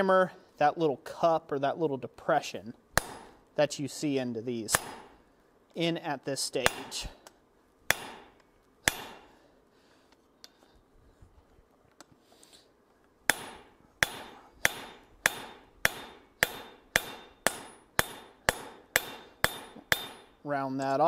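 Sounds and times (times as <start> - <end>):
hammer striking metal punch: 3.0 - 3.4, 4.7 - 5.2, 6.6 - 7.1, 7.9 - 9.3, 13.3 - 20.4.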